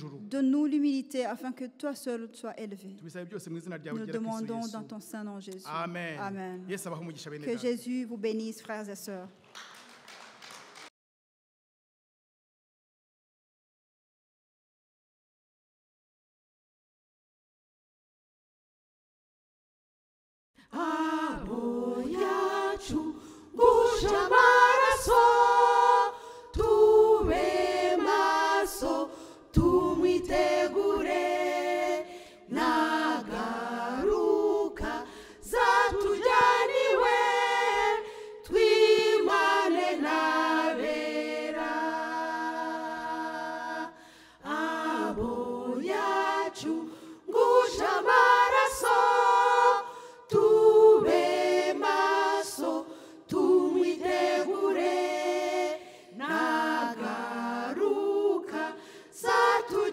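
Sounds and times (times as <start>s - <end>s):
women's choir singing a cappella: 20.6s - 59.9s.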